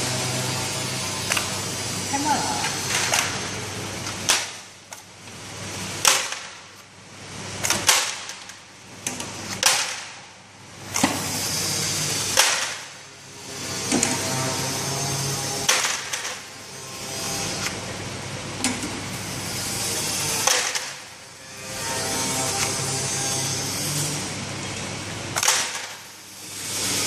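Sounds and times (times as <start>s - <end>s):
running mechanical noise: 0.0s - 27.0s
labeling machine sharp snap: 1.3s - 1.5s, 6.0s - 6.9s, 7.6s - 10.2s, 12.3s - 12.9s, 15.6s - 16.4s, 20.4s - 21.0s, 25.4s - 26.1s.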